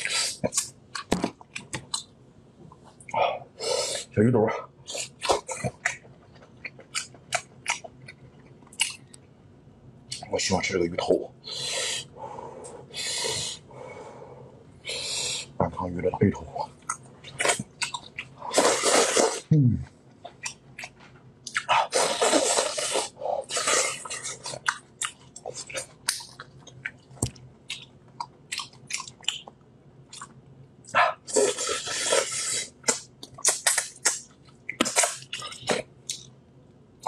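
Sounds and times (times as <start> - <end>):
wet chewing and lip-smacking: 4.9 - 9.2, 16.8 - 18.3, 20.2 - 30.4, 31.4 - 36.3
slurping: 18.5 - 19.6, 21.5 - 24.7, 31.2 - 34.2.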